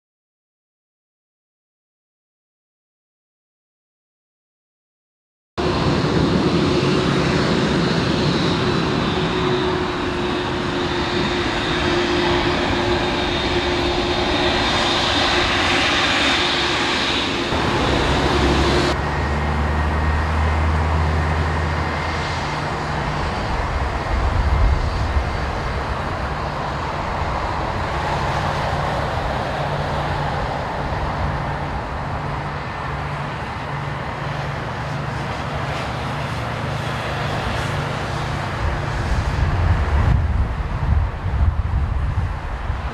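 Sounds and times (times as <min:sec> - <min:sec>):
jet engines running: 0:05.6 - 0:42.9.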